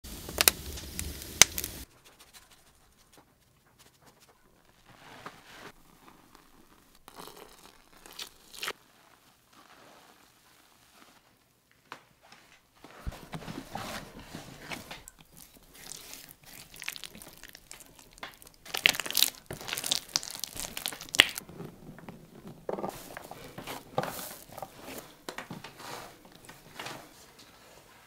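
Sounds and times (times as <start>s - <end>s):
wood fire crackling: 0.0s - 27.1s
dough mixed by hand: 0.1s - 28.0s
liquid pouring into flour: 6.3s - 8.6s.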